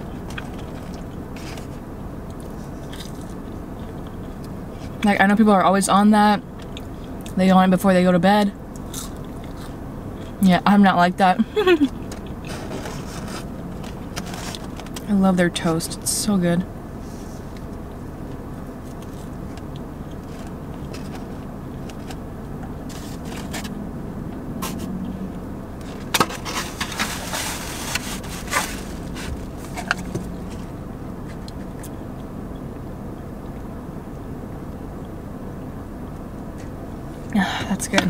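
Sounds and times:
close chewing and mouth noises: 0.0s - 5.0s, 6.5s - 7.4s, 8.7s - 10.4s, 11.9s - 15.1s, 17.3s - 23.7s, 26.6s - 33.8s
steady low hum: 0.0s - 38.0s.

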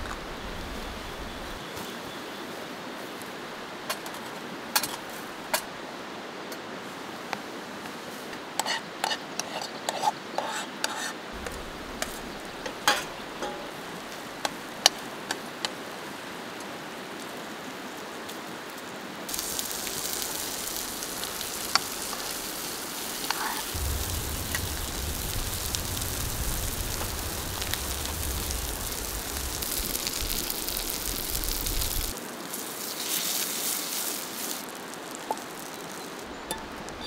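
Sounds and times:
sausage sizzling in a pan: 19.3s - 36.5s.

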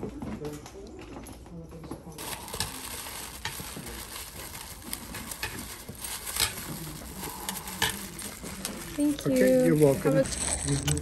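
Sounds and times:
tissue paper rustling and crinkling: 2.2s - 11.0s.

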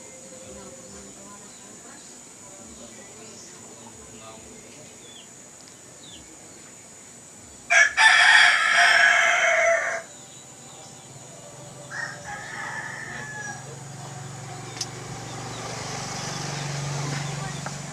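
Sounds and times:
rooster crowing: 7.7s - 10.1s, 11.8s - 14.0s.

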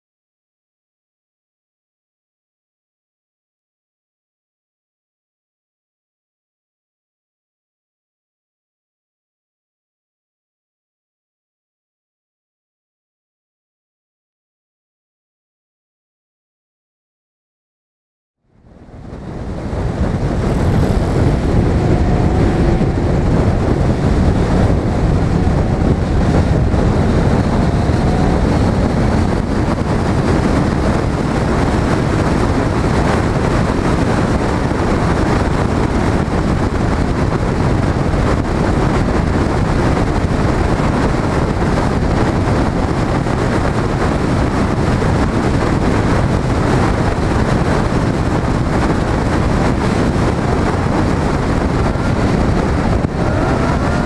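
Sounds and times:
car road and engine noise: 18.5s - 54.0s
wind buffeting microphone: 18.5s - 54.0s.

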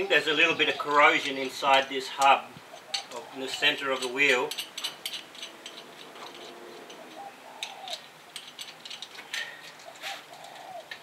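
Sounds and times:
bird calls: 0.0s - 1.5s, 2.6s - 3.8s, 6.7s - 8.1s, 9.4s - 11.0s
metal parts clinking: 2.2s - 11.0s.

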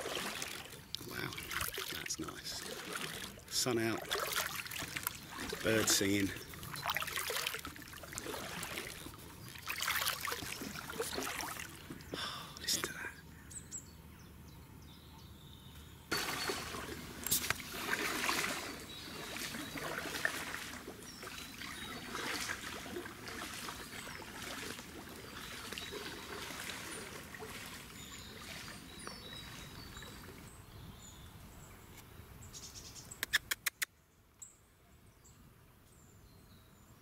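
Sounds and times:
kayak paddle splashing in water: 0.0s - 12.1s, 16.1s - 30.5s
sharp clicks: 33.2s - 33.9s.

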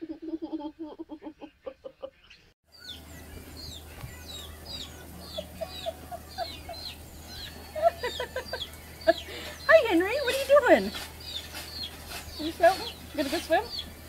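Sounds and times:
birds chirping: 1.2s - 14.0s.

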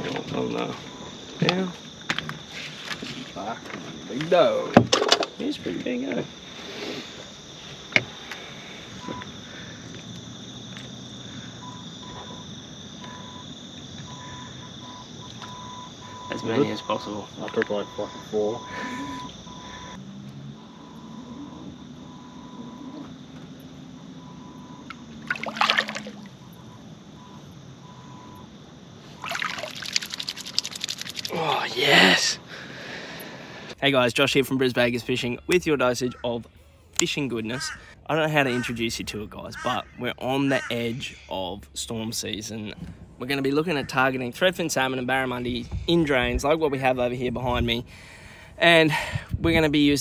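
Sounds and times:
insects chirring: 0.0s - 50.0s
fish splashing in water: 25.2s - 26.4s, 29.1s - 31.4s.

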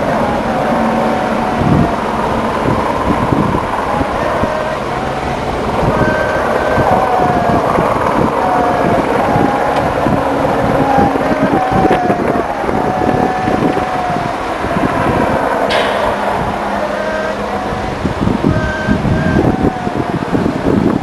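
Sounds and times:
wind rumbling on microphone: 0.0s - 21.0s
faint wavering tones: 13.8s - 19.8s.

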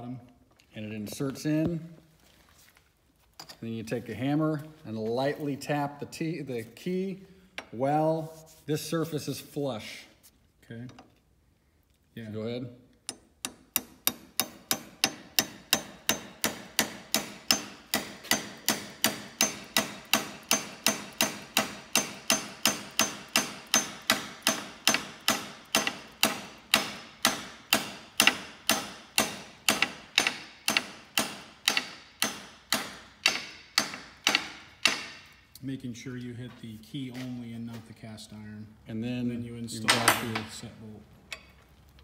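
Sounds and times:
hammer tapping metal: 13.0s - 35.6s.

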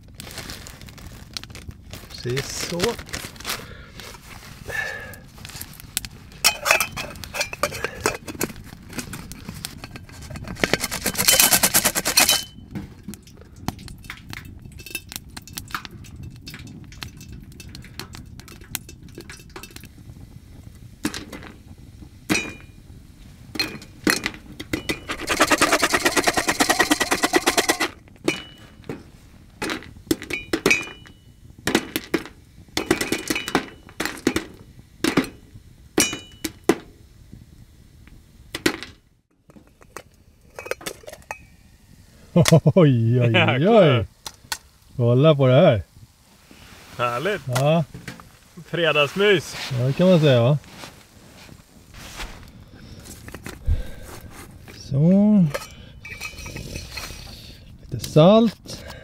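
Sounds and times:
popcorn popping: 0.0s - 3.8s, 4.7s - 37.0s, 38.5s - 41.6s
pot rattling on stovetop: 6.4s - 19.9s, 23.6s - 28.8s, 55.5s - 57.2s.

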